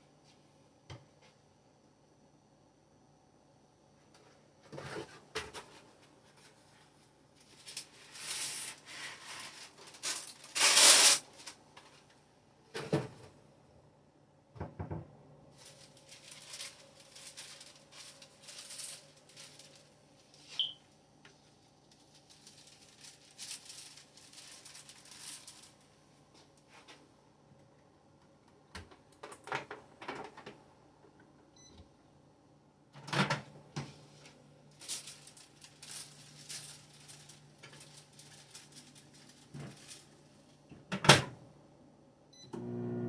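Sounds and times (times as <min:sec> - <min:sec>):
paper and dishes rustling: 0:04.7 - 0:12.1, 0:15.5 - 0:20.6, 0:21.9 - 0:25.9, 0:33.8 - 0:40.4
microwave beep: 0:20.6 - 0:20.8, 0:31.5 - 0:31.8, 0:42.3 - 0:43.0
microwave oven humming: 0:42.3 - 0:43.0.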